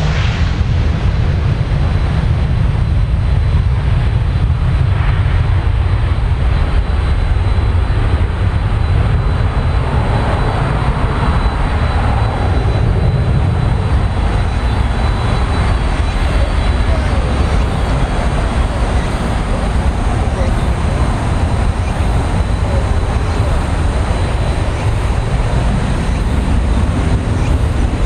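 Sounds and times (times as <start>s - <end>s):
jet engines at takeoff: 0.0s - 28.0s.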